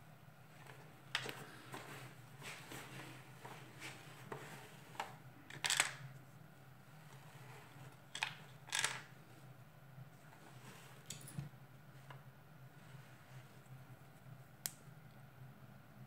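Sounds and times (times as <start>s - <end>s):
plastic parts clicking: 5.5s - 6.0s, 8.1s - 9.1s.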